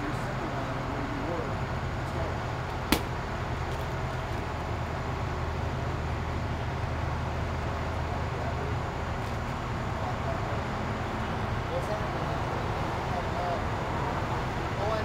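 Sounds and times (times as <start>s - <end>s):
road traffic rumble: 0.0s - 15.0s
sharp smack: 2.9s - 3.2s.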